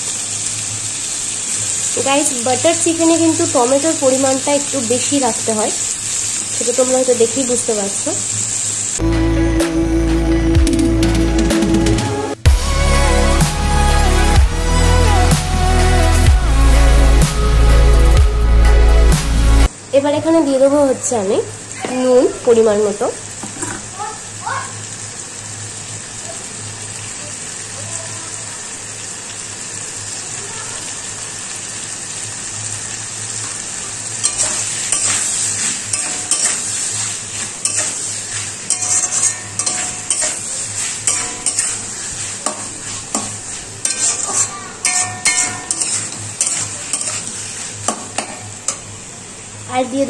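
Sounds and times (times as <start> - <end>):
vegetables sizzling in a pan: 0.0 - 9.1, 19.6 - 50.0
metal spatula scraping a pan: 34.2 - 48.8.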